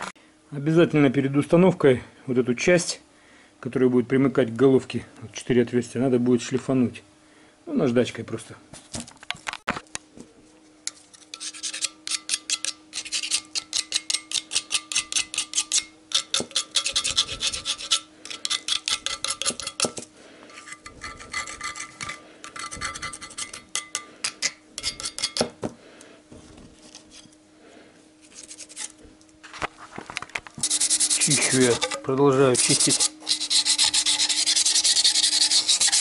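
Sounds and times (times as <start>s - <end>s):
sandpaper rubbing on metal: 12.9s - 13.5s, 16.5s - 19.6s, 28.2s - 28.9s, 30.6s - 36.0s.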